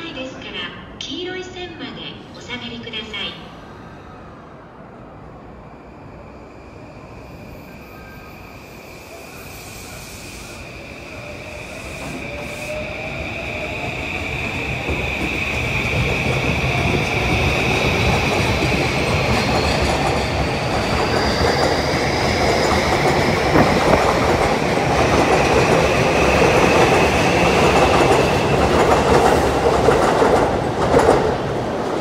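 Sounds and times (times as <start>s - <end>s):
train wheels clickety-clack: 13.5s - 32.0s.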